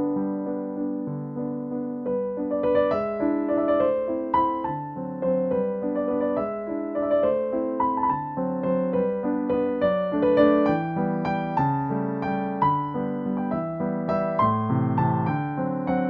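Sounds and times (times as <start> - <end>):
instrumental music: 0.0 - 16.0.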